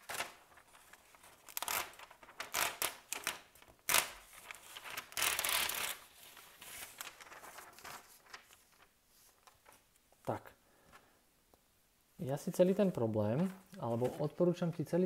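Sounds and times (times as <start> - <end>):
paper rustling and sliding: 0.0 - 10.0, 12.6 - 14.6.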